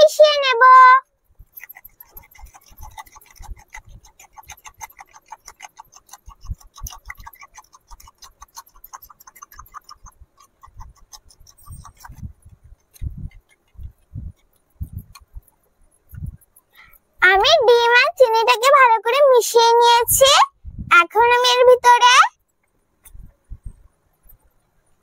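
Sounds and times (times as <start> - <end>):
utensil clinking in clay bowl: 1.4 - 13.7.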